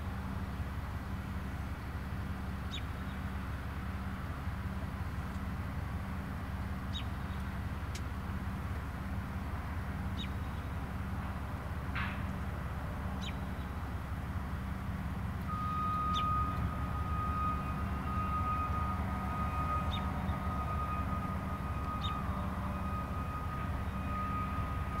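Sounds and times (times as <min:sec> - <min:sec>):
freight cars rumbling: 0:00.0 - 0:25.0
bird chirping: 0:13.2 - 0:13.6
high-pitched wheel squeal: 0:15.5 - 0:25.0.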